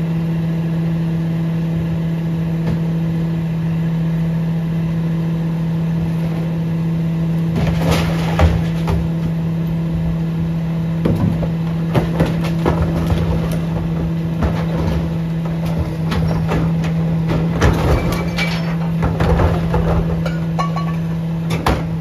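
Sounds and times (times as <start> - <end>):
garbage truck humming: 0.0 - 22.0
bins and recyclables clattering: 7.5 - 9.5, 11.0 - 22.0.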